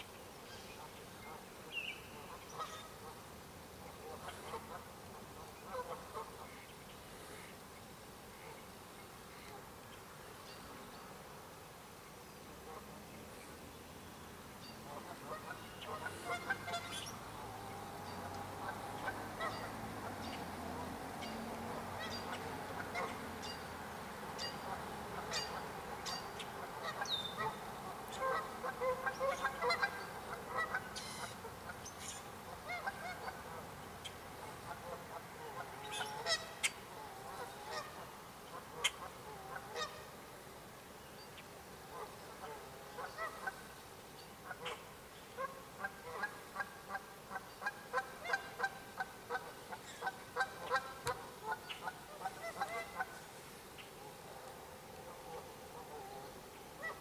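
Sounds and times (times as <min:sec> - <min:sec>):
geese honking: 0:05.7 - 0:06.6, 0:14.8 - 0:23.7, 0:24.4 - 0:33.6, 0:34.6 - 0:40.2, 0:41.9 - 0:43.7, 0:45.4 - 0:53.2, 0:55.0 - 0:57.0.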